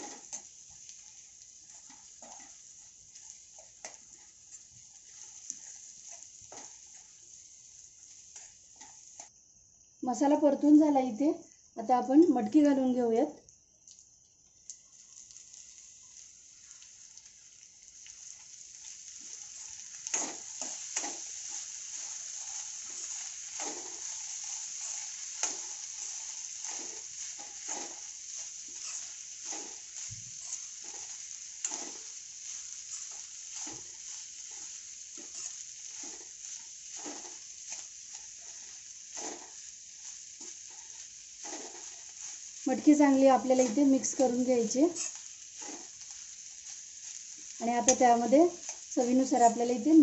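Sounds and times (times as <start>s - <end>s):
spoon scraping and knocking pan: 0.0s - 7.3s, 18.3s - 49.6s
beans sizzling in oil: 0.0s - 50.0s.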